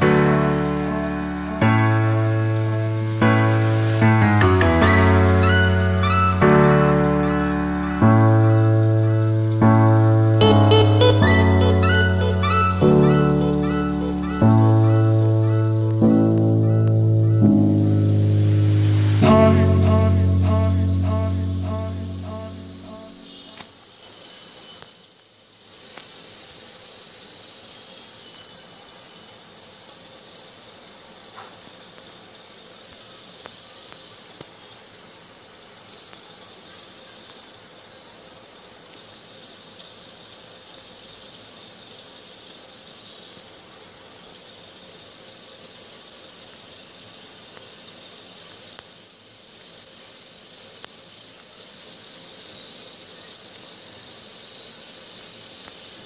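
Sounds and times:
background hiss: 0.0s - 56.0s
faint high tone: 10.4s - 15.7s, 19.2s - 23.6s.

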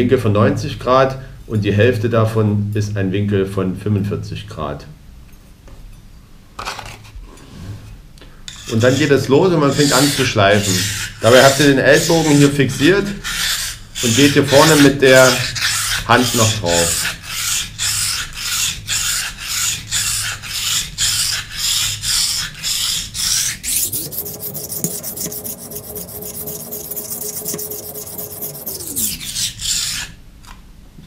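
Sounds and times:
knife scraping on whetstone: 8.5s - 30.2s
low hum: 23.6s - 29.7s.

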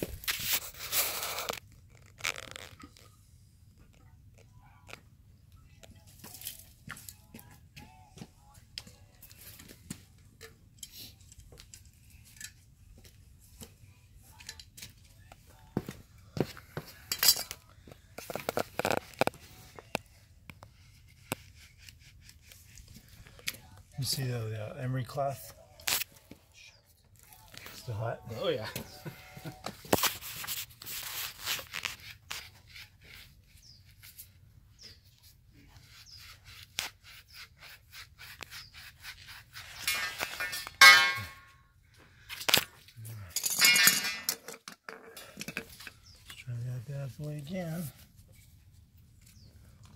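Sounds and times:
metal pipe fittings clinking: 17.0s - 17.6s, 39.8s - 41.5s, 43.3s - 45.8s
emery cloth rasping on pipe: 20.6s - 23.2s, 28.4s - 41.2s
ringing metallic sound: 40.8s - 41.5s.

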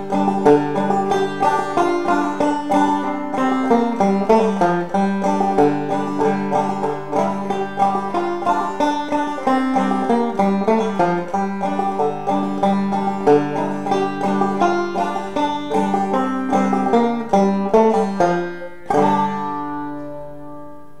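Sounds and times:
banjo melody: 0.0s - 21.0s
strummed banjo chord ringing: 0.0s - 21.0s.

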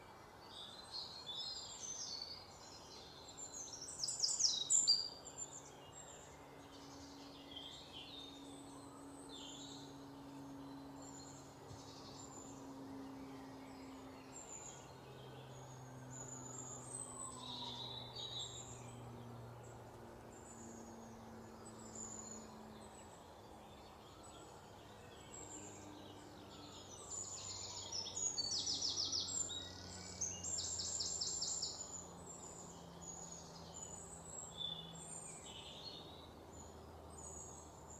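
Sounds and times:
faint low hum: 0.0s - 37.9s.

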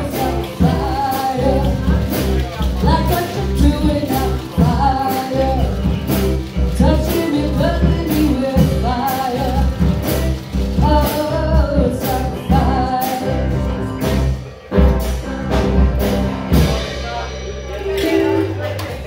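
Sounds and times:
woman singing: 0.0s - 14.2s
live rock band: 0.0s - 19.0s.

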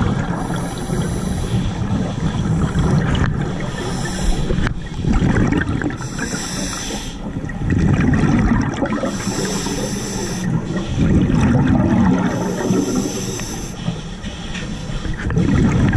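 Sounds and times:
exhaled bubbles rumbling: 0.0s - 13.8s, 15.0s - 15.9s
air hissing on inhalation: 3.7s - 4.7s, 6.0s - 7.2s, 9.1s - 10.6s, 12.3s - 13.9s.

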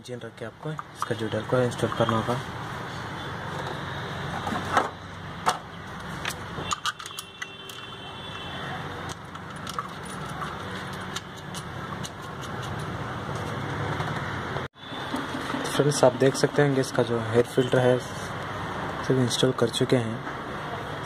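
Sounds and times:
metallic clinks of engine parts: 6.2s - 8.0s.

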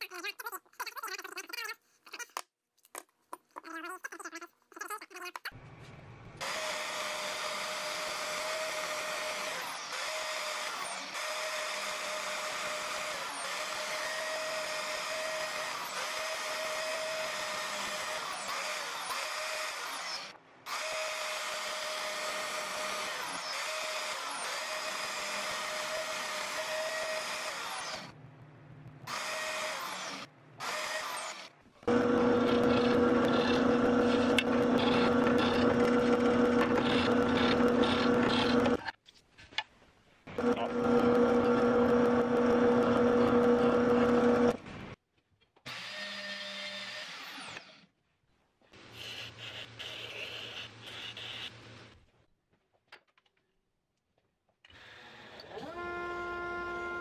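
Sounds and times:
bandsaw cutting wood: 29.1s - 38.8s, 40.4s - 44.6s
drill press motor hum: 31.4s - 38.8s, 40.3s - 45.0s.

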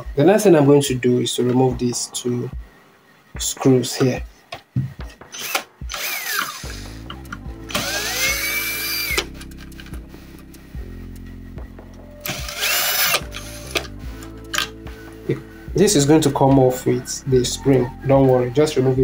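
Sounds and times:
background music: 0.0s - 19.0s
cordless drill motor whine: 5.4s - 7.0s, 7.7s - 9.3s, 12.2s - 13.9s.

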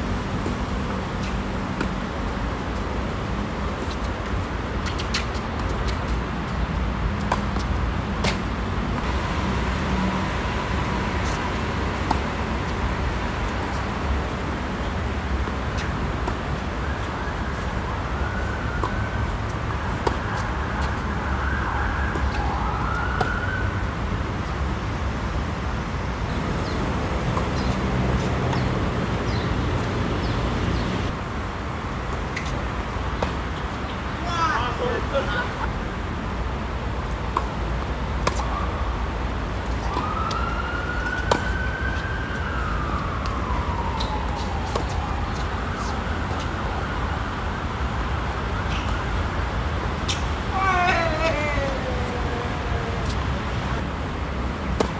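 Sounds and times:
city traffic hum: 0.0s - 54.9s
distant siren: 16.6s - 24.0s, 39.7s - 49.1s.

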